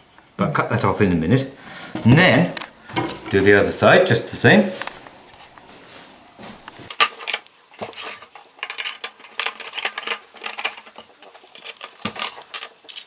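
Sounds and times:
steel parts clinking together: 8.6s - 13.0s.

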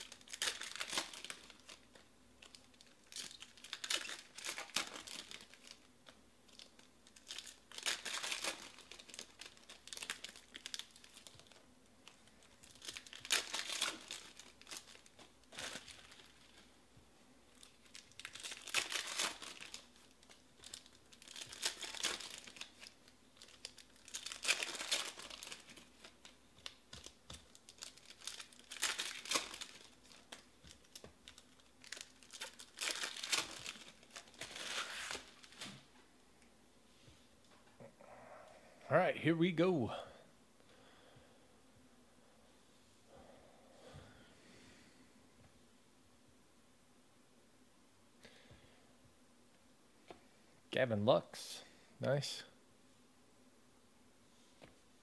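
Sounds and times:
foil packs tearing and crinkling: 0.0s - 11.6s, 12.4s - 16.7s, 17.5s - 35.9s.

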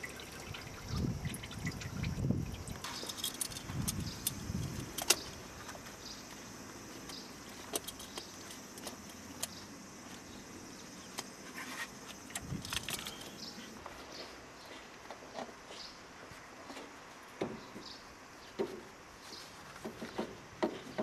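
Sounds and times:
light metallic clicks and clinks: 2.7s - 5.4s, 7.0s - 9.6s, 12.2s - 13.8s.

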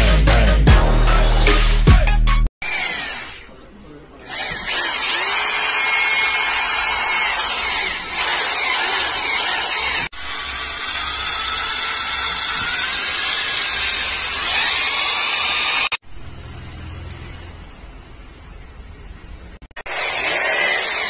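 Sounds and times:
rotary hammer motor whirring: 2.6s - 16.0s, 19.8s - 21.0s.

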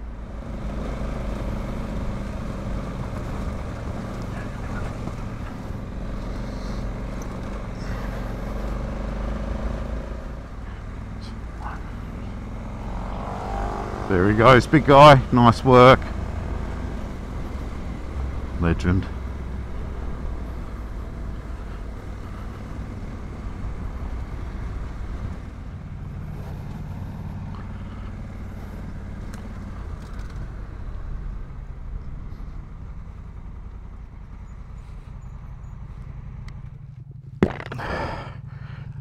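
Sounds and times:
motorcycle engine running: 0.0s - 39.0s
tyre noise on dirt: 37.4s - 38.4s.

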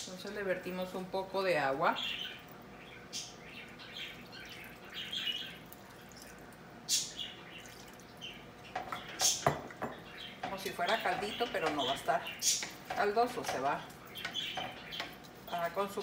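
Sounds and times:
water sloshing in pot: 3.6s - 16.0s
wooden spoon scraping pot: 8.7s - 16.0s
knock on pot: 8.8s - 10.6s.

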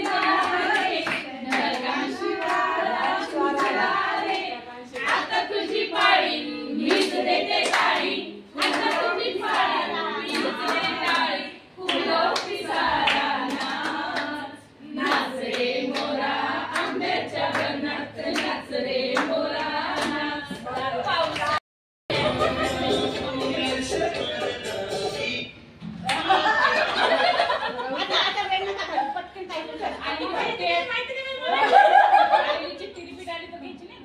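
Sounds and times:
people singing together: 0.0s - 25.6s
hands clapping: 6.9s - 9.7s.

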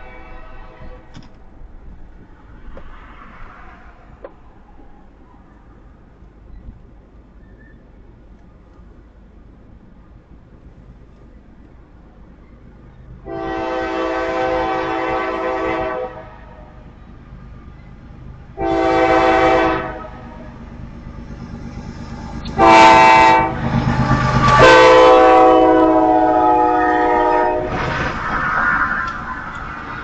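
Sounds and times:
locomotive horn blasts: 0.0s - 1.2s, 13.2s - 16.8s, 18.6s - 20.4s, 22.4s - 27.8s
diesel locomotive engine rumble: 0.0s - 30.0s.

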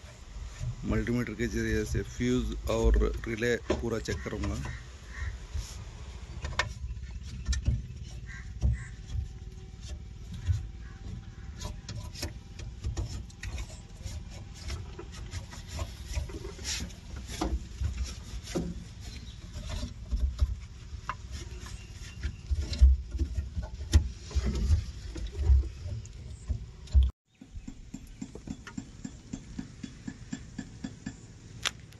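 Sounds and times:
irregular clicks and knocks: 6.4s - 21.3s, 22.2s - 31.9s.

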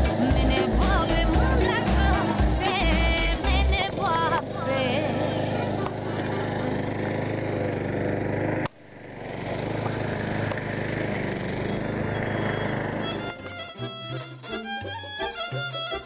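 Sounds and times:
music: 0.0s - 4.2s, 13.1s - 16.0s
small engine running: 0.0s - 16.0s.

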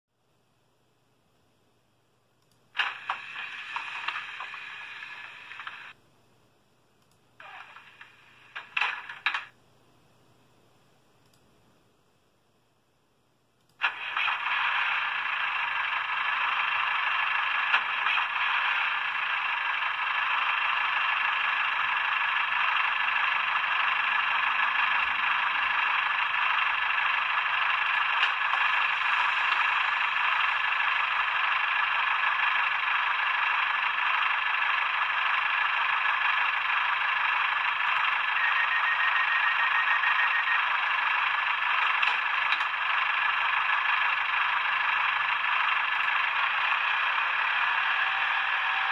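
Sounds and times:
tinny diesel engine sound: 13.8s - 48.9s.

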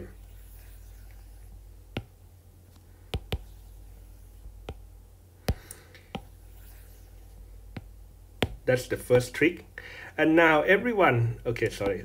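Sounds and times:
faint low hum: 0.0s - 12.0s
stylus tapping on glass screen: 1.9s - 2.2s, 3.1s - 3.6s, 4.6s - 4.9s, 5.5s - 6.4s, 7.7s - 8.6s.

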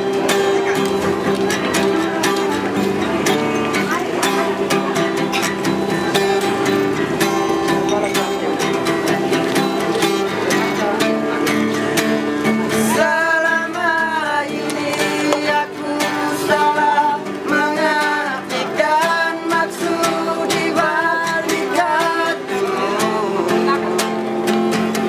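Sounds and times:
acoustic guitar strumming: 0.0s - 25.0s
male voices singing in harmony: 5.5s - 25.0s.

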